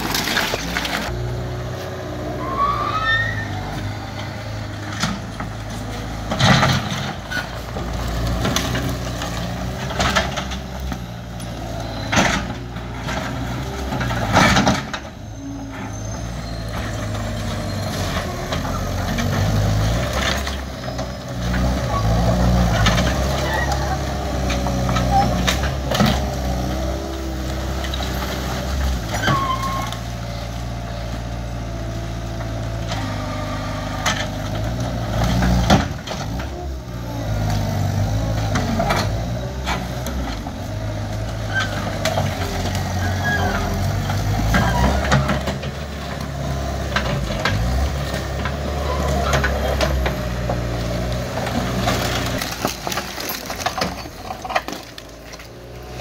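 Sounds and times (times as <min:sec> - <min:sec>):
skid steer engine running: 0:00.0 - 0:56.0
debris knocking and clanking: 0:51.5 - 0:55.5.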